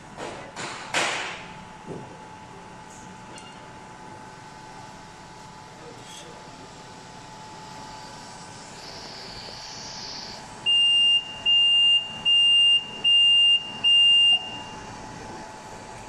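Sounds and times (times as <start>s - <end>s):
steady background hum: 0.0s - 16.0s
high-pitched buzzer beeps: 8.7s - 14.8s.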